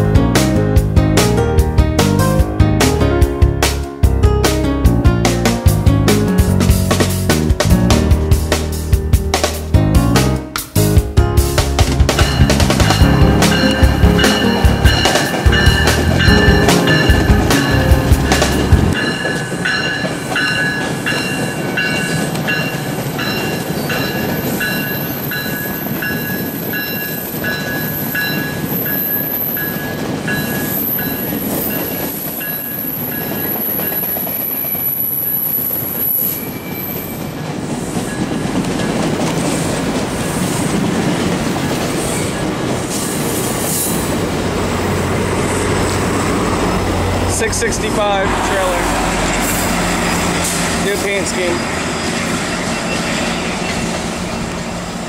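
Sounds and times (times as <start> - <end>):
steel wheels rumbling on rails: 5.6 - 9.7, 10.6 - 55.0
wheels squealing: 12.2 - 55.0.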